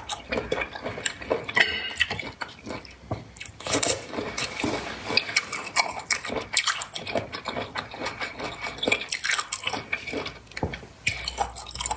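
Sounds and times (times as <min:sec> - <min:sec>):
person chewing food: 0:00.0 - 0:11.9.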